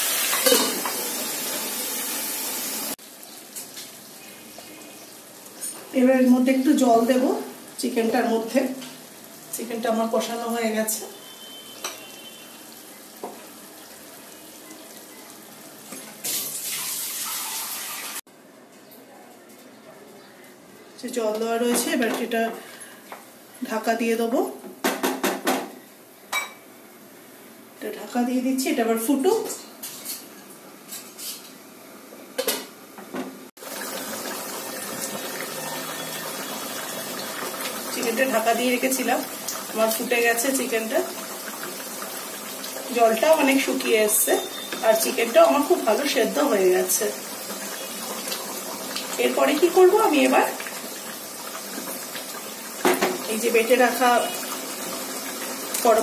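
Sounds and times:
food sizzling in a pan: 0:00.0 - 0:18.3, 0:33.6 - 0:56.0
running water: 0:33.6 - 0:56.0.

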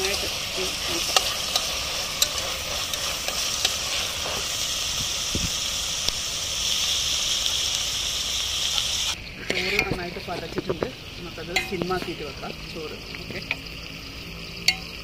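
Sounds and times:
onions sizzling in oil: 0:00.0 - 0:15.0
metal spoon clicking on pot: 0:14.6 - 0:14.9.

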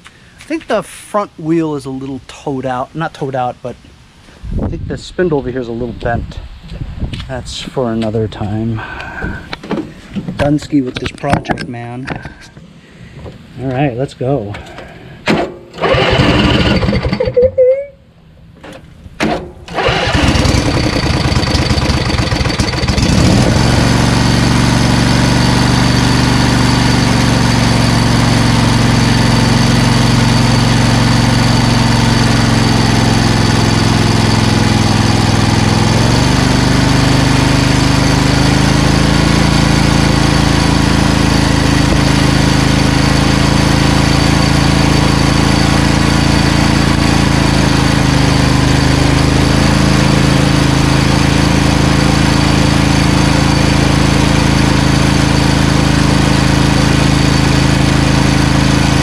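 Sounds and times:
lawn tractor engine running: 0:15.7 - 0:17.4, 0:18.6 - 0:59.0
engine cranking: 0:15.8 - 0:17.5, 0:19.2 - 0:23.6.

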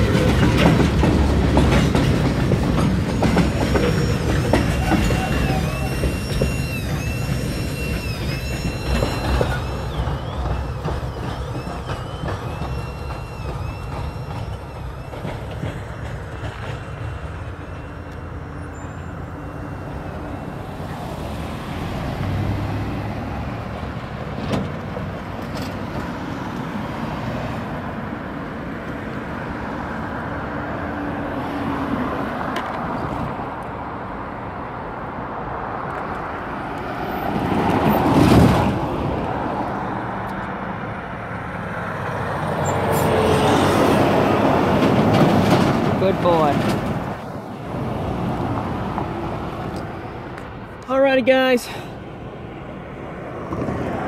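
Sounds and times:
crossing warning bell ringing: 0:00.0 - 0:21.9
vehicle engines running: 0:00.0 - 0:26.2
train cars rumbling past: 0:00.0 - 0:54.0.

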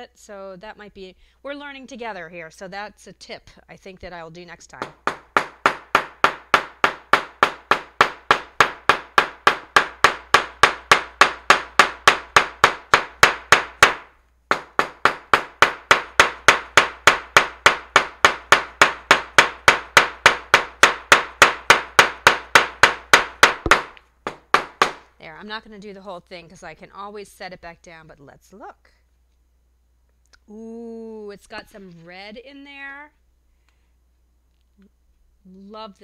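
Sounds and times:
hammer tapping on paper: 0:04.8 - 0:25.1.

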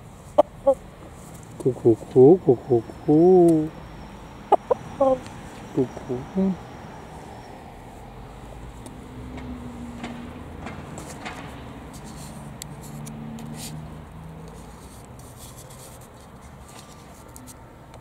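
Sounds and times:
faint low drawn-out tones: 0:00.4 - 0:08.8
scratchy rubbing on microphone: 0:14.5 - 0:17.6.

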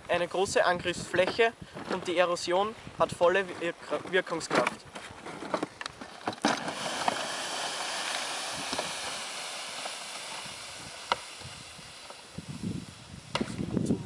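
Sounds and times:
sled scraping on snow: 0:03.4 - 0:14.0.

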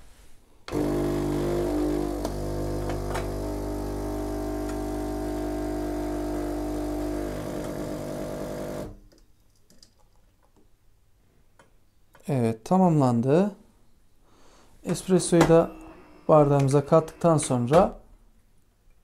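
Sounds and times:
coffee machine pump humming: 0:00.7 - 0:08.9.

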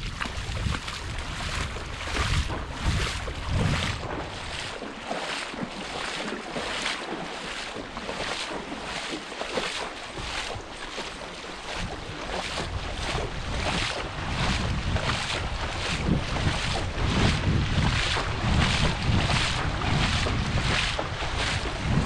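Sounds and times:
wind buffeting microphone: 0:00.0 - 0:05.0, 0:10.1 - 0:22.0
footsteps on trail: 0:00.0 - 0:22.0.

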